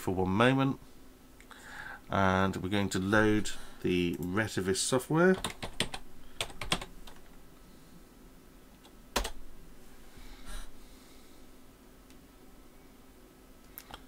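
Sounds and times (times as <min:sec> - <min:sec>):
faint steady hum: 0:00.0 - 0:14.0
keyboard typing: 0:05.3 - 0:07.4, 0:09.1 - 0:09.4.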